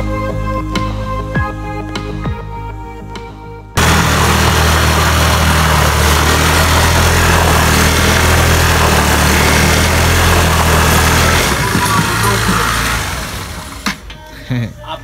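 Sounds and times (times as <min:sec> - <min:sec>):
soft music: 0:00.0 - 0:03.8
scooter engine running: 0:03.8 - 0:14.1.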